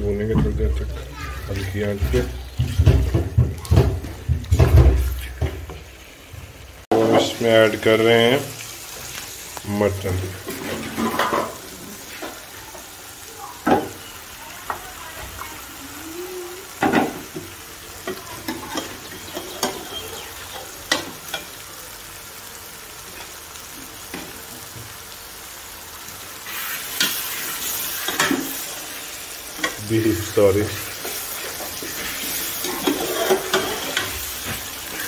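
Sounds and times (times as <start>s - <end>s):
masala sizzling in a pan: 0.0s - 35.0s
wooden spatula knocking against pan: 2.6s - 5.8s.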